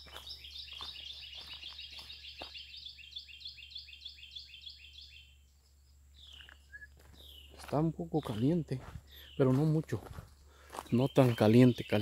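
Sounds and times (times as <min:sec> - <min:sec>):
footsteps on leafy dirt trail: 0:00.0 - 0:03.0, 0:06.2 - 0:12.0
bird chirping: 0:00.0 - 0:12.0.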